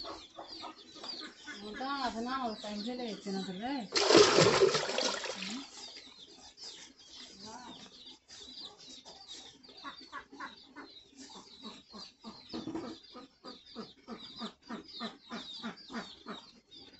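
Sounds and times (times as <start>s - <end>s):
chickens clucking: 0.0s - 16.9s
small birds chirping: 0.0s - 16.9s.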